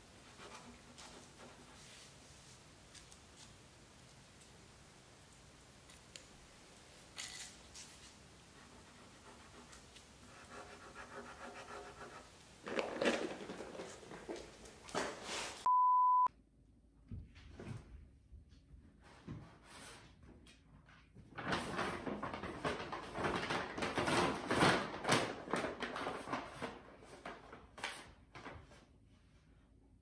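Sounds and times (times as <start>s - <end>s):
paper bags rustling: 12.6s - 15.6s, 21.4s - 27.2s
electronic beep: 15.7s - 16.3s.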